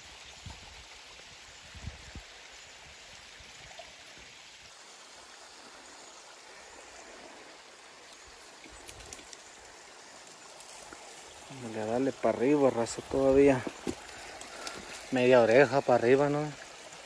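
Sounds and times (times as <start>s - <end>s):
creek trickling over rocks: 0.0s - 17.0s.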